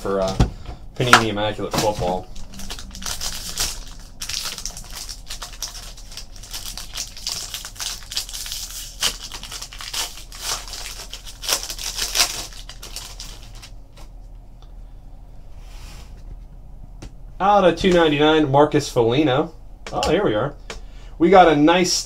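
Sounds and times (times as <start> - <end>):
foil wrapper crinkling: 1.8 - 13.8.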